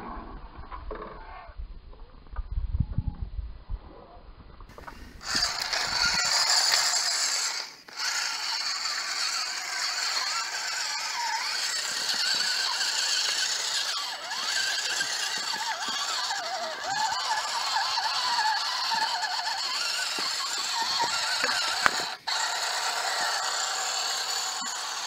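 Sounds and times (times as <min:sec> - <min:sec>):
electric motor whining: 0:04.8 - 0:25.0
rattling: 0:04.8 - 0:25.0.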